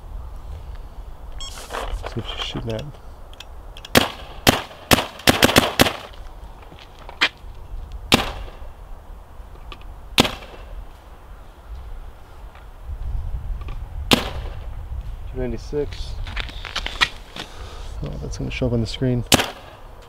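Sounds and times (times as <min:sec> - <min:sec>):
paintball marker shots: 0:08.1 - 0:08.6, 0:10.2 - 0:10.7, 0:14.1 - 0:14.6, 0:19.3 - 0:19.8.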